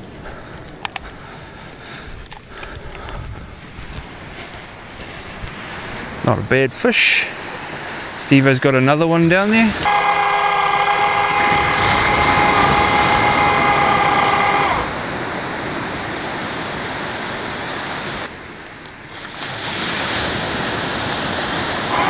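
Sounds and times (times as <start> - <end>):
wind: 0.0 - 22.0
surf hissing: 4.2 - 18.4, 19.1 - 22.0
electric winch motor whining: 9.8 - 15.0.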